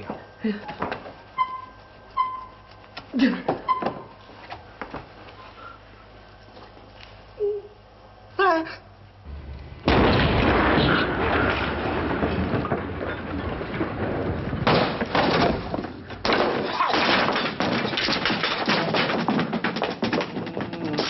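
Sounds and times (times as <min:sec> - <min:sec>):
explosion: 0:09.3 - 0:15.6
sudden loud crashes: 0:09.3 - 0:18.0
debris crashing down: 0:09.7 - 0:21.0.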